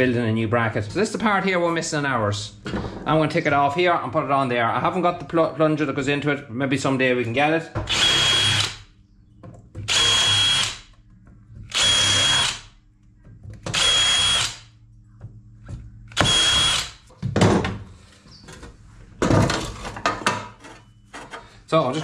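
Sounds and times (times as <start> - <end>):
cordless drill boring into steel: 7.9 - 8.8, 9.9 - 10.8, 11.7 - 12.6, 13.8 - 14.6, 16.2 - 17.0.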